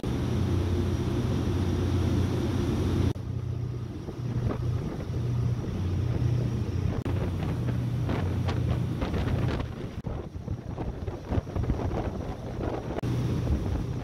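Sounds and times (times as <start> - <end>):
diesel engines droning: 0.0 - 11.1
water rushing in wake: 0.0 - 14.0
wind buffeting microphone: 3.0 - 14.0.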